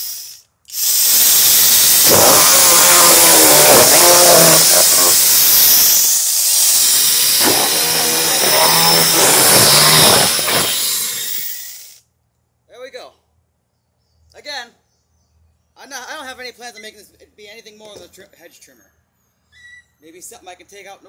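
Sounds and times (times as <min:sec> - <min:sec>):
chainsaw whirring: 0:00.0 - 0:12.0
chain cutting cardboard: 0:01.7 - 0:05.9, 0:06.6 - 0:11.5.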